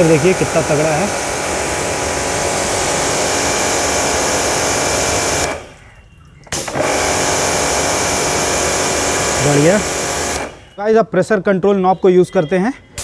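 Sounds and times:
pressure washer running: 0:00.0 - 0:05.8, 0:06.5 - 0:10.8
water jet spraying: 0:00.0 - 0:10.8.

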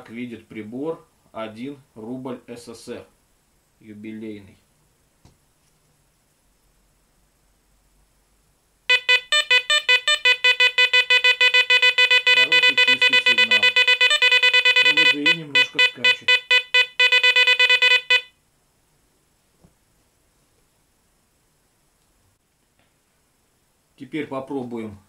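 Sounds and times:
metal detector beeps: 0:08.9 - 0:18.3.

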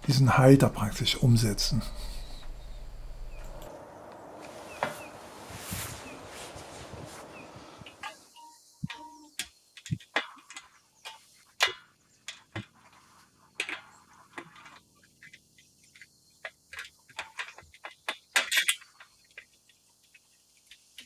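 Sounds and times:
metal rail clicks and knocks: 0:08.8 - 0:13.0, 0:13.6 - 0:15.4, 0:16.0 - 0:19.6.

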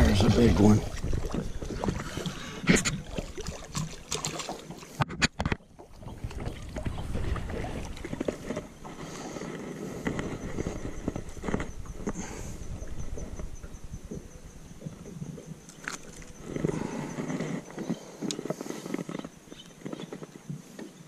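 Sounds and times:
wind rumbling on microphone: 0:00.0 - 0:04.0, 0:05.0 - 0:20.6
fish splashing at water surface: 0:00.7 - 0:05.0.

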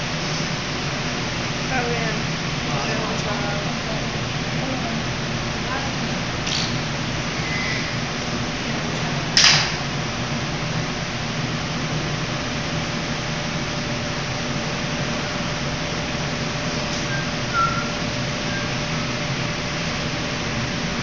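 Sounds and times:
kitchen ventilation hum and hiss: 0:00.0 - 0:21.0.

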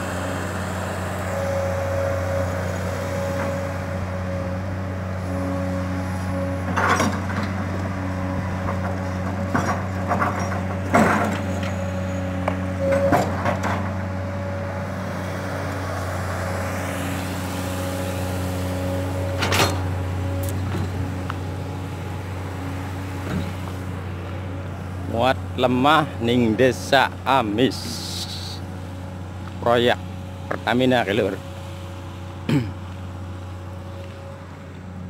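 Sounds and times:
excavator diesel engine running: 0:00.0 - 0:35.0.

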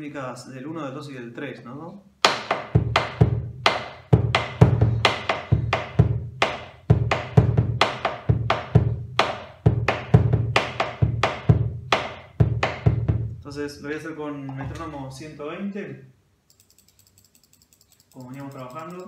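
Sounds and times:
deep booming bass drum strokes: 0:04.2 - 0:13.4
sharp wooden stick clicks: 0:16.5 - 0:19.0.

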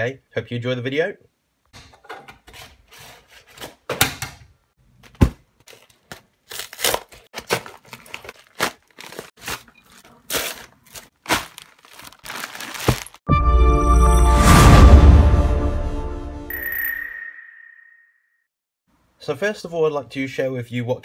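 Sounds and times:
envelope tearing: 0:05.6 - 0:13.2
plastic bag crinkling: 0:05.6 - 0:13.3
envelope thumping onto doormat: 0:12.7 - 0:13.2
music: 0:13.3 - 0:16.5.

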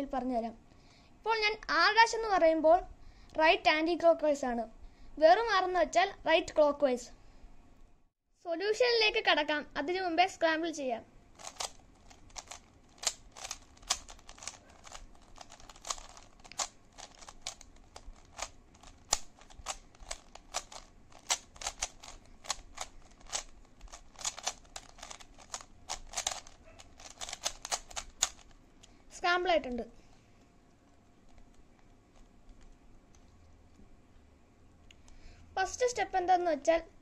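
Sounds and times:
puzzle cube twisting clicks: 0:11.4 - 0:28.9, 0:30.8 - 0:33.3.

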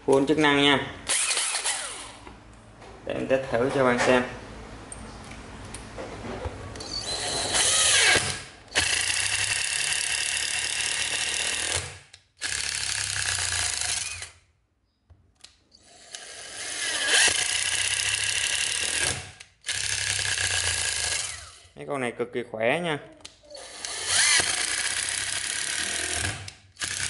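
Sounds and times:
impact driver driving screws: 0:01.1 - 0:02.2, 0:06.8 - 0:14.4, 0:15.8 - 0:21.6, 0:23.6 - 0:27.0.

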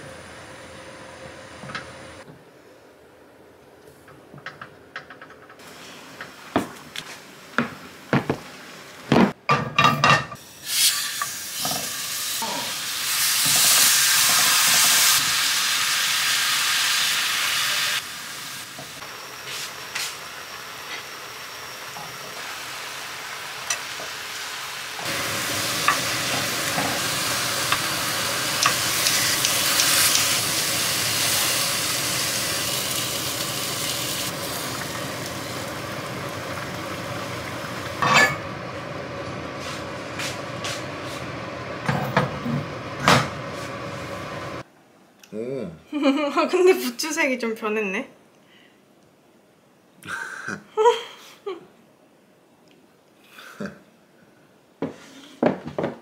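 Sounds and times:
meat sizzling in a frying pan: 0:10.4 - 0:20.7, 0:21.7 - 0:38.4.

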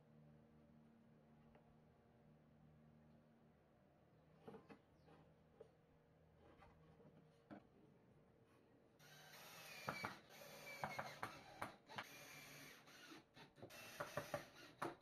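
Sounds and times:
cordless drill boring into wood: 0:09.0 - 0:15.0.

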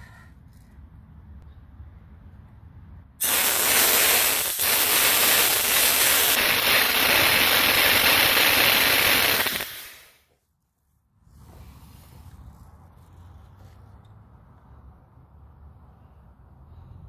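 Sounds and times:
gas gun rushing hiss: 0:03.2 - 0:10.3.

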